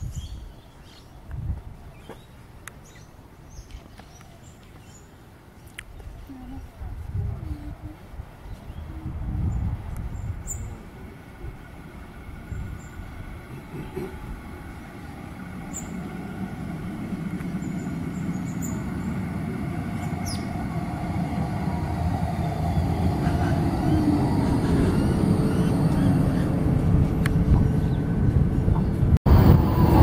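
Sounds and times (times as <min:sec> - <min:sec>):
tram wheels rumbling on rails: 0:07.9 - 0:30.0.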